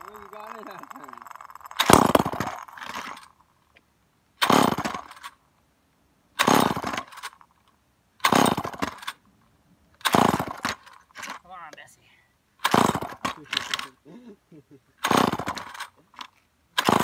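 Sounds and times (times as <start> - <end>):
chainsaw recoil starter whirring: 0.0 - 3.8, 4.4 - 5.4, 6.4 - 7.6, 8.2 - 9.2, 10.0 - 11.4, 12.6 - 14.0, 15.0 - 17.0.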